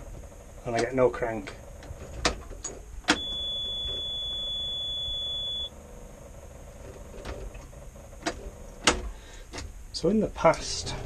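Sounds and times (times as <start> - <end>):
high warning buzzer beep: 3.1 - 5.7.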